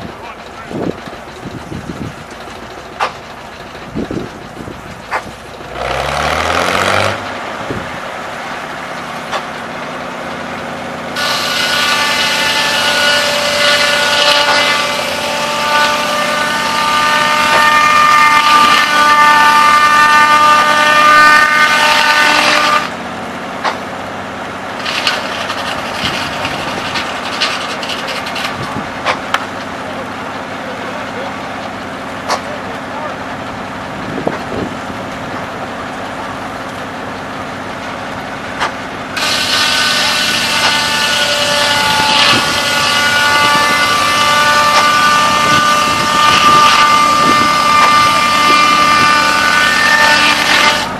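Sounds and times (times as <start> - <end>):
saw blade whining through log: 10.9 - 23.0, 24.8 - 30.0, 38.4 - 50.9.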